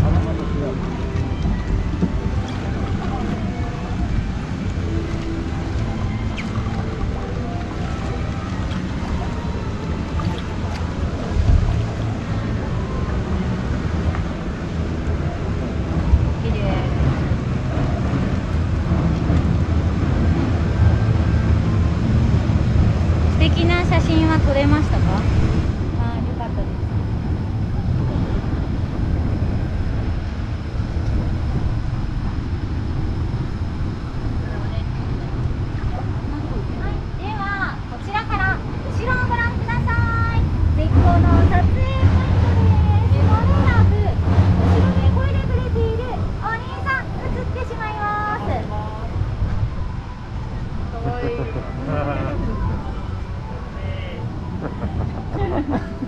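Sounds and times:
harbour ambience: 0.0 - 56.0
wind rumbling on microphone: 0.0 - 56.0.

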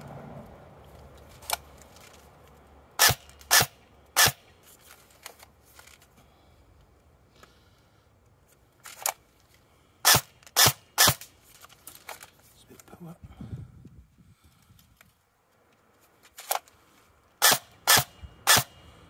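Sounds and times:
airsoft rifle shots: 3.0 - 4.5, 10.0 - 11.3, 17.4 - 18.8.

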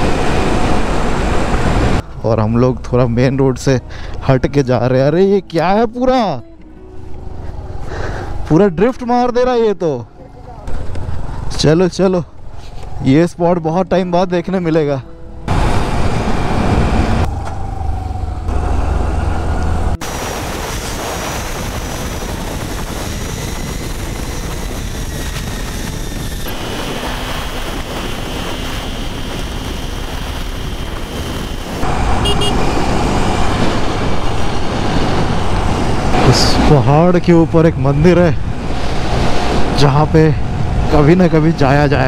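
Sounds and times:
wind rumble on microphone: 0.0 - 2.0, 15.5 - 42.0
scooter road noise: 0.0 - 2.9, 15.2 - 42.0.

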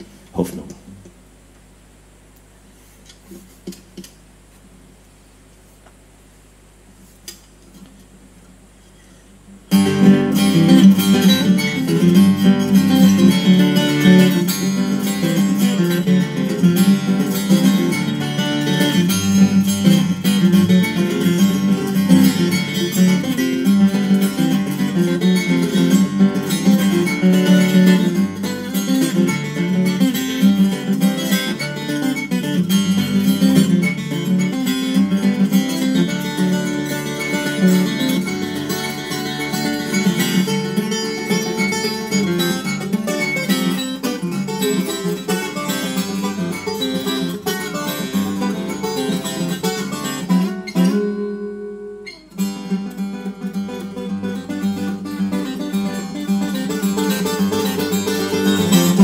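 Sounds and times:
fingerstyle acoustic guitar: 9.0 - 59.0.

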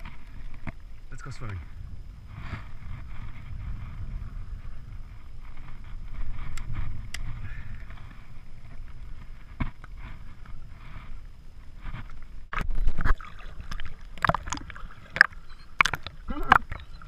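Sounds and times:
wind rumble on microphone: 0.0 - 17.0
lake water lapping: 12.5 - 17.0.

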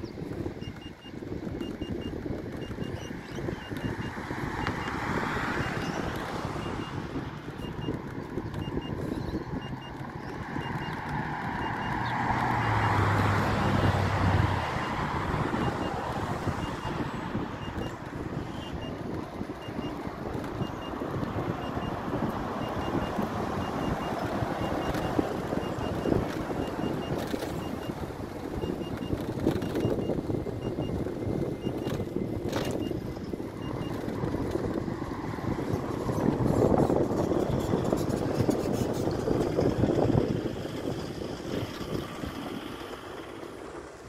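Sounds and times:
road noise: 0.0 - 44.0
wind rumble on microphone: 0.0 - 44.0
vehicle passing: 3.5 - 44.0.

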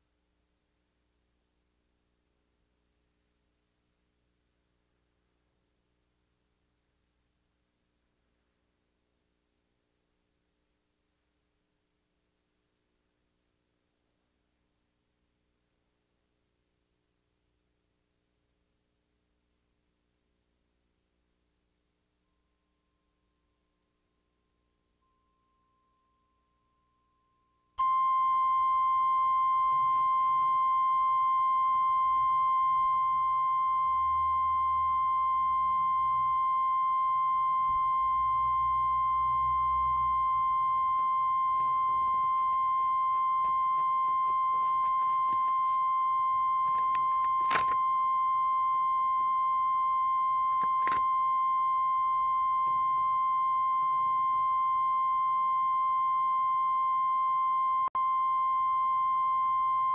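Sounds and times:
pure test tone beep: 25.0 - 59.9.

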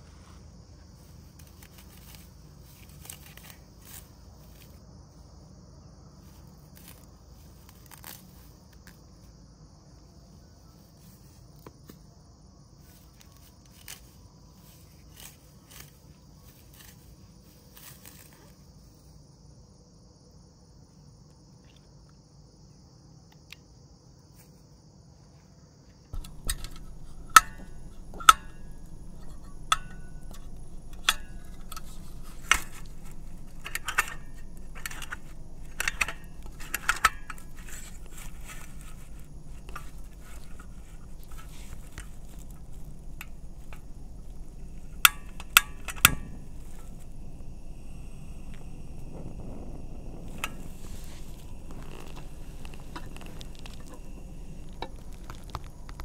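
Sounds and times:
insects chirring: 0.0 - 56.0
faint clicks and rustles: 0.1 - 4.8, 26.2 - 56.0
low hum: 26.2 - 56.0
sharp clicks: 26.2 - 56.0.

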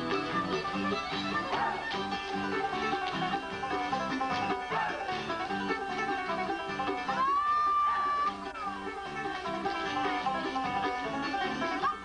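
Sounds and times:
bluegrass banjo and guitar tune: 0.0 - 12.0.

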